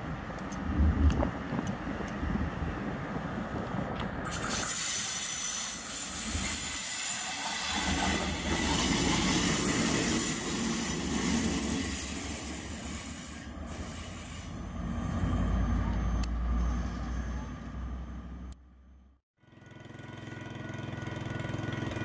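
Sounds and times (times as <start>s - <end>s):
steel wheels on rails: 3.6s - 17.4s.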